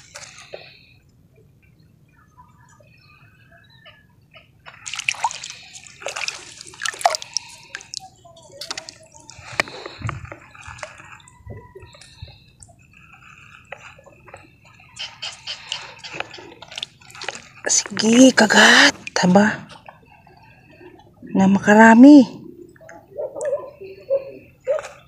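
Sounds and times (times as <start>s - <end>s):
water splashes and drips: 4.7s - 12.8s, 13.6s - 18.2s.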